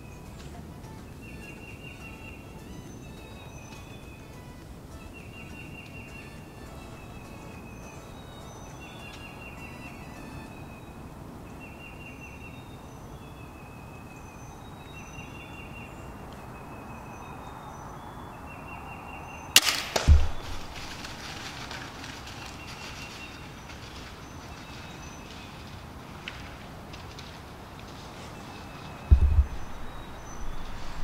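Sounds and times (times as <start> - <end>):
rustling in dry leaves: 0.0 - 31.0
deep thud: 19.6 - 21.2, 29.1 - 31.0
crossbow release crack: 19.6 - 21.8.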